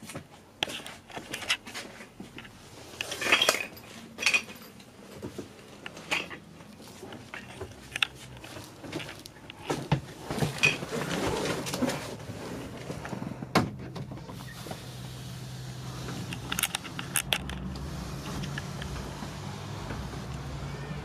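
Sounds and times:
handling knocks and rustling: 0.0 - 14.8.

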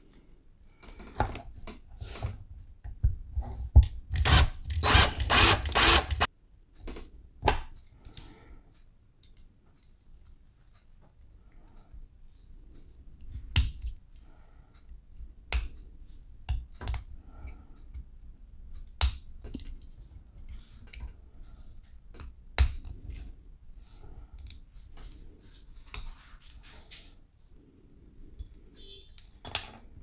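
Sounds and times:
screwdriver clicking on metal toy: 4.2 - 6.3.

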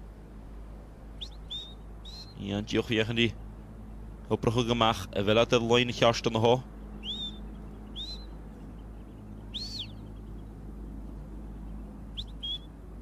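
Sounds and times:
sheepdog whistle: 12.2 - 12.7.

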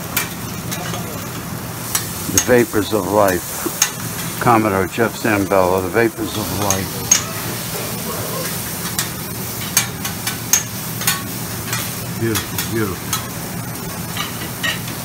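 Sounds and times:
food sizzling on a griddle: 0.0 - 15.0
metal spatulas scraping and clacking: 6.6 - 7.4.

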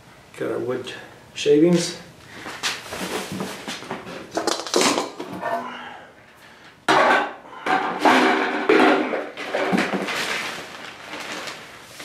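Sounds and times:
metal tray clattering: 6.9 - 10.4
wood shavings rustling and pattering: 9.4 - 12.0.

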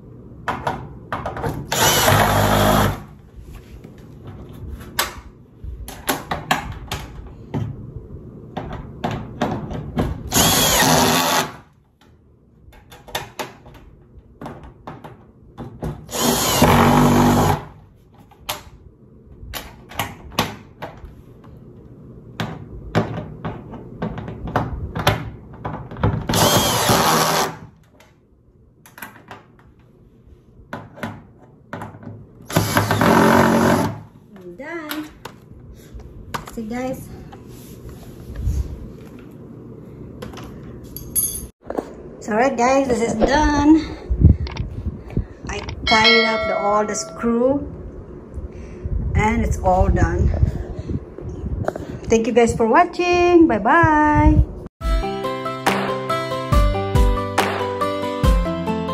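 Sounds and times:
cordless drill driving screws: 1.7 - 3.0, 10.3 - 11.6, 16.1 - 17.6, 26.3 - 27.6.

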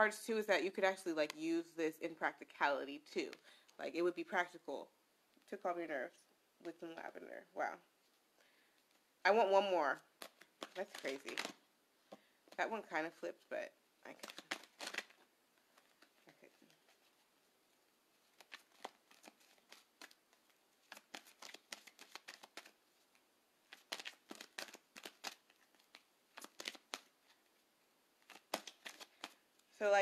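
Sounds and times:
cards being shuffled: 10.1 - 12.6, 14.1 - 17.3, 18.2 - 27.6, 28.2 - 29.4.

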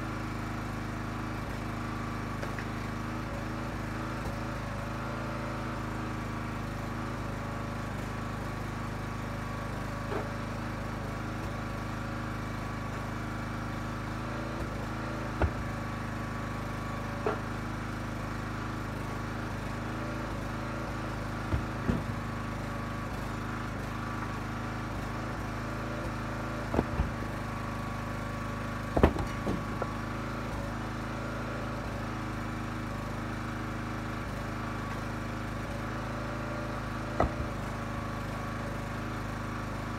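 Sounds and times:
small gas engine running: 0.0 - 39.9
wood splitting knocks: 2.4 - 2.9, 10.0 - 10.4, 14.4 - 17.6, 20.7 - 22.5, 25.9 - 28.1, 28.8 - 30.2, 37.0 - 38.1.

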